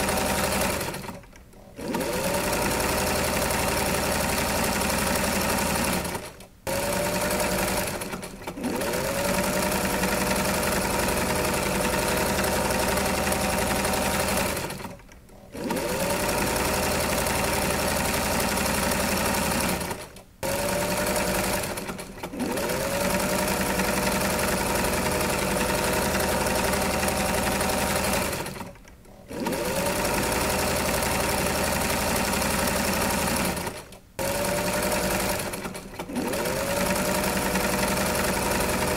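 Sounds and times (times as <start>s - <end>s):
electric sewing machine running: 0.0s - 38.9s.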